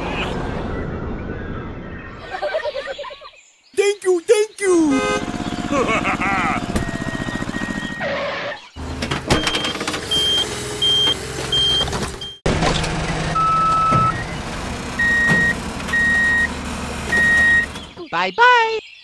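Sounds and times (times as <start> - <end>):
truck engine running: 4.7 - 8.1, 8.7 - 18.0
reversing beeper: 5.8 - 8.6.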